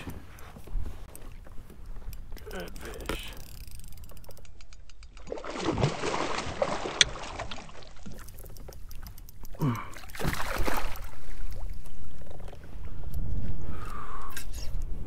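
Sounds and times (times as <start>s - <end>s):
water splashing against a kayak: 5.3s - 12.8s.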